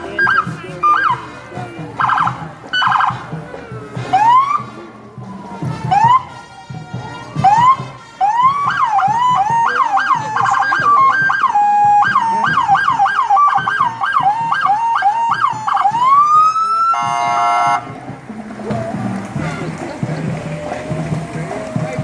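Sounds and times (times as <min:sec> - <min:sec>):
police siren yelping and wailing: 0:00.0 - 0:18.0, 0:18.6 - 0:22.0
buzzing horn blast: 0:17.0 - 0:17.9, 0:19.3 - 0:20.0.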